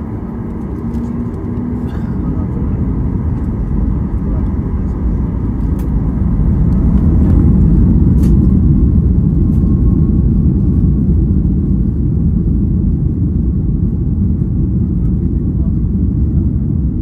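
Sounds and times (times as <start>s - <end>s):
jet engine rumble from cabin: 0.0s - 17.0s.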